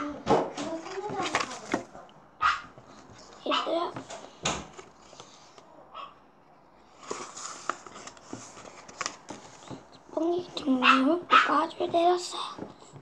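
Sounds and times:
paper pages rustling: 0:00.5 - 0:02.0, 0:02.8 - 0:05.7, 0:06.8 - 0:10.8.

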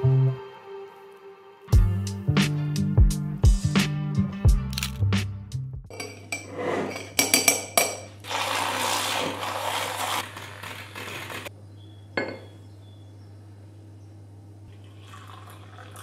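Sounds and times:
milk frother whirring: 0:08.2 - 0:11.5.

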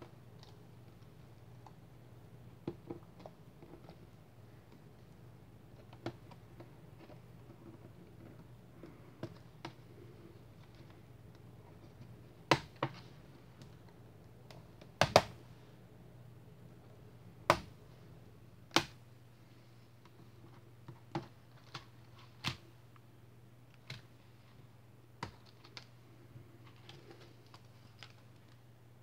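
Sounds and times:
plastic clips snapping: 0:18.7 - 0:19.0.

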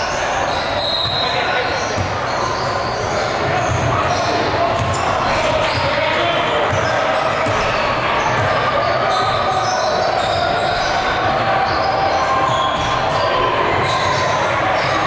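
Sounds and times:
basketball bouncing on court: 0:03.5 - 0:06.0, 0:06.6 - 0:09.4.

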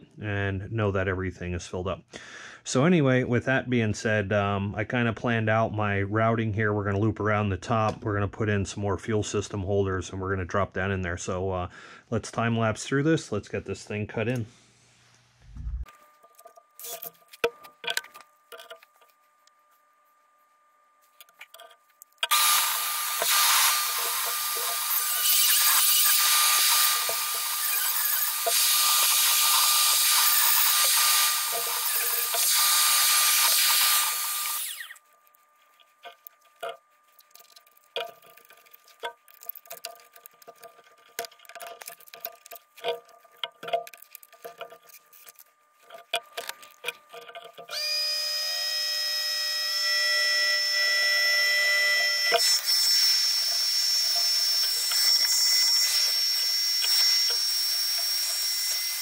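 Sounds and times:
small parts clicking and tapping: 0:15.9 - 0:19.6, 0:21.1 - 0:47.8, 0:52.0 - 0:59.0
rotary tool whining: 0:21.1 - 0:59.0.

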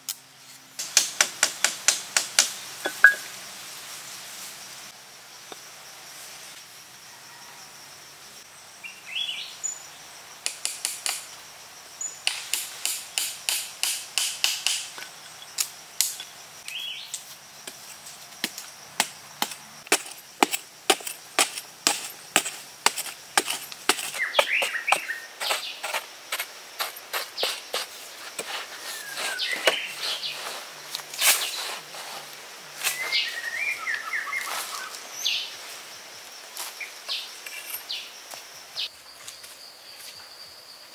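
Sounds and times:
hand tool digging hard earth: 0:17.7 - 0:33.1
bird chirps: 0:24.1 - 0:25.8, 0:28.8 - 0:30.4, 0:32.8 - 0:35.5.

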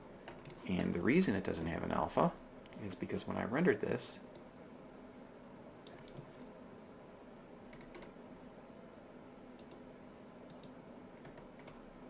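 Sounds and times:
low steady room hum: 0:00.0 - 0:12.0
computer mouse clicks: 0:05.8 - 0:06.3, 0:07.7 - 0:08.2, 0:09.6 - 0:09.8, 0:10.5 - 0:11.8.

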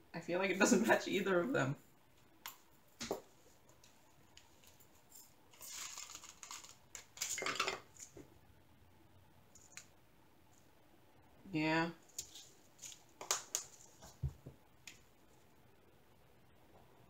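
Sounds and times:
plastic bags crinkling: 0:05.5 - 0:07.9.

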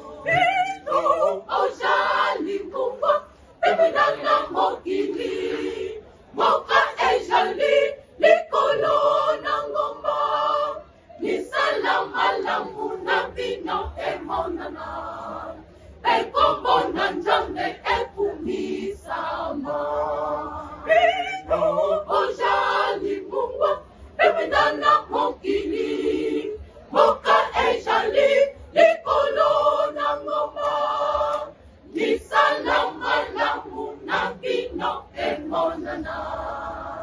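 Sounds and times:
mixed choir singing: 0:00.0 - 0:37.0.

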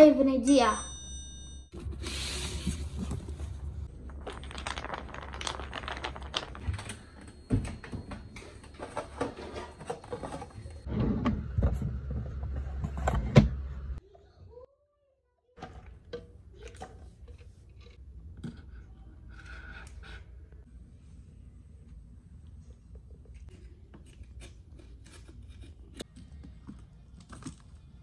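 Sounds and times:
household objects knocking and clicking: 0:03.9 - 0:10.6.

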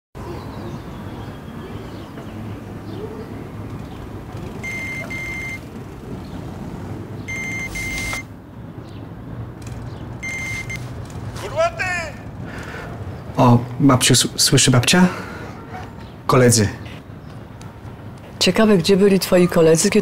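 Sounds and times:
low hum of traffic: 0:00.2 - 0:20.0
high electronic double beep: 0:07.3 - 0:08.3, 0:10.2 - 0:10.8.

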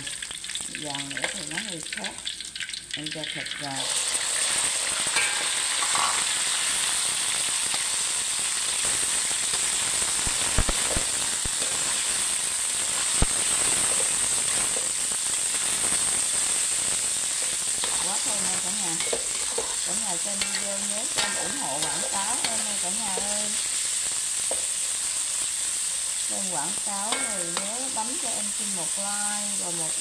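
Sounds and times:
meat sizzling in hot oil: 0:00.0 - 0:30.0
metal spatula clicking on wok: 0:05.1 - 0:06.3, 0:17.8 - 0:23.6, 0:27.1 - 0:27.7.

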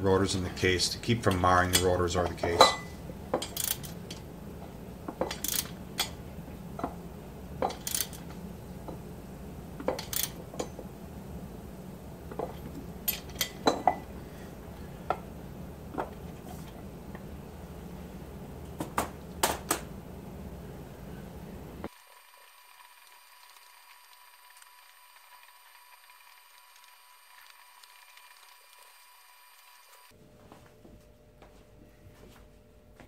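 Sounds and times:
steady low hum: 0:00.0 - 0:21.9, 0:30.1 - 0:33.0
hand tools clinking on metal: 0:01.2 - 0:04.0.

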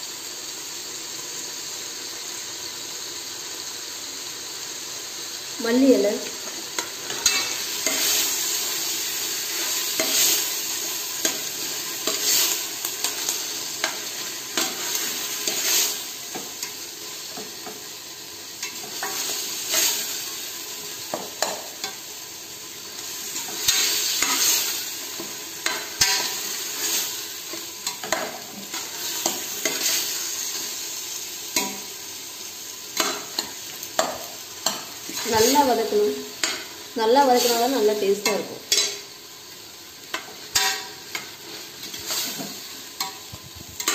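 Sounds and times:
vegetables sizzling in oil: 0:00.0 - 0:43.9
spatula scraping a pan: 0:06.8 - 0:08.6, 0:09.3 - 0:16.8, 0:23.2 - 0:30.8, 0:40.1 - 0:43.9.

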